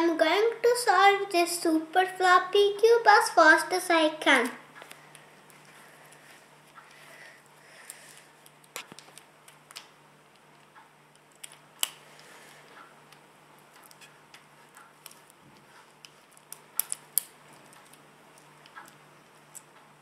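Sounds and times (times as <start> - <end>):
plastic puzzle cube clicking: 16.4 - 19.0.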